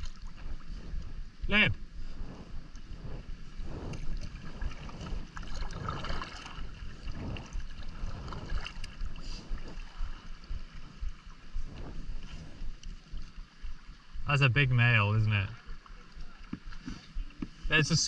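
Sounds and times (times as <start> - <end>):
water sloshing against hull: 0.0 - 14.3, 15.2 - 18.0
wind rumble on microphone: 0.0 - 18.0
paddle splashing in water: 3.5 - 14.1.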